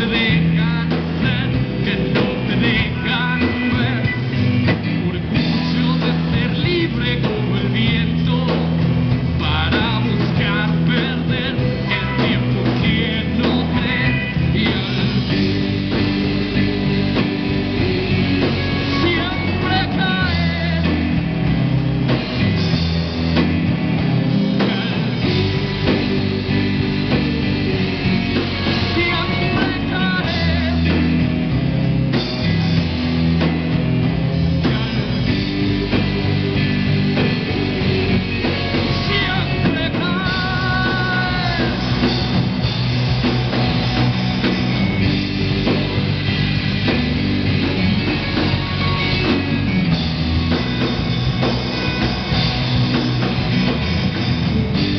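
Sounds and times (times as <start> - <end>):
man singing: 0.0 - 21.6, 24.4 - 31.6, 34.4 - 42.5
rock band playing live: 0.0 - 54.9.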